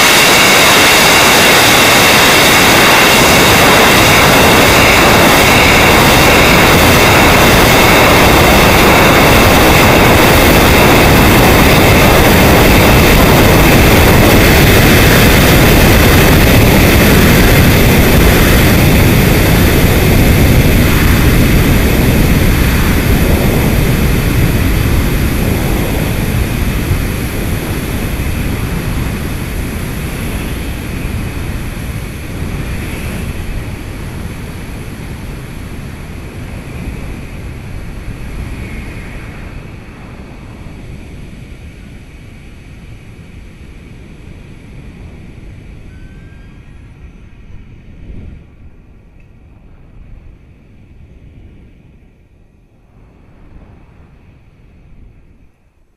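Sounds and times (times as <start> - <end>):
rocket rushing roar: 0.0 - 43.4.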